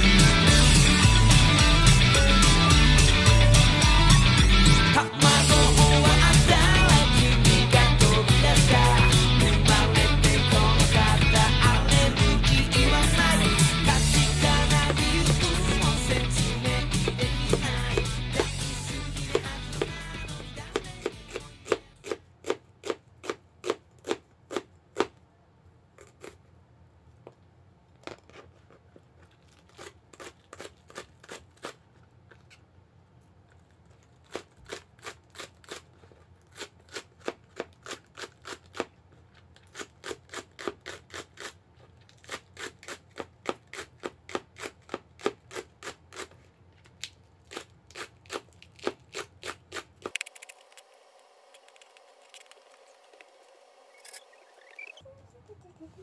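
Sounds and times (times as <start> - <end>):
knife chopping on plastic board: 14.2 - 25.1.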